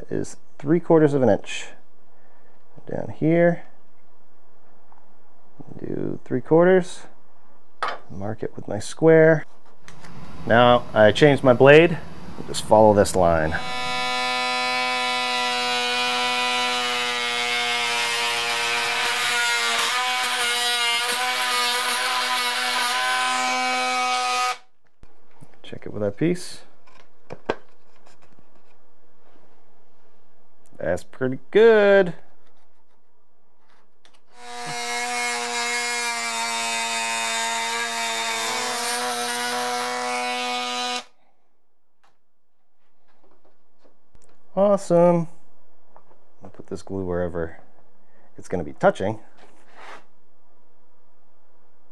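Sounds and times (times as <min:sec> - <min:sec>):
multi-tool cutting wood: 0:12.7 - 0:24.7, 0:34.1 - 0:41.2.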